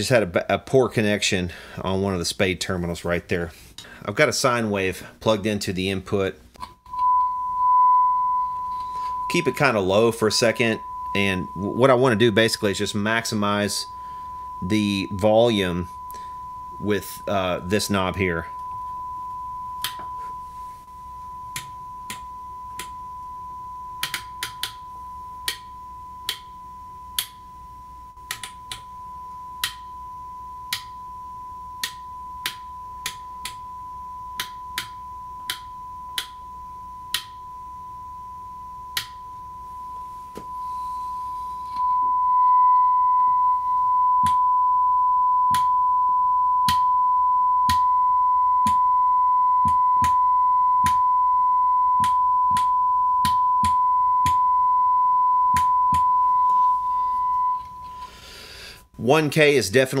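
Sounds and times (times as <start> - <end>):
steady sine test tone: 6.6 - 58.9.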